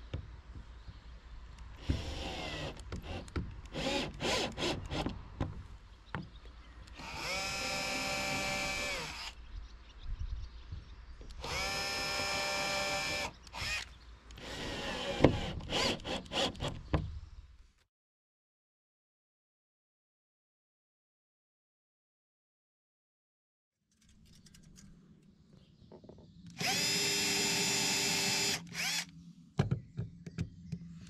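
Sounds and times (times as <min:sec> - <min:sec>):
cordless drill running: 0:01.8 - 0:05.0, 0:07.0 - 0:09.4, 0:11.4 - 0:16.5, 0:26.6 - 0:29.1.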